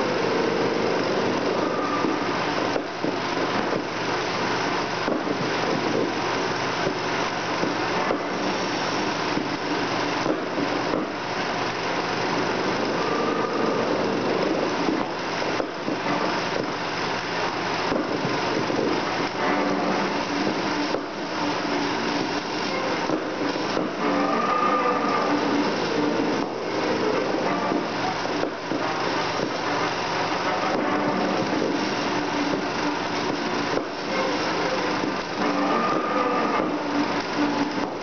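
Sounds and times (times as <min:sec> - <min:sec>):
film projectors whirring: 0:00.0 - 0:38.0.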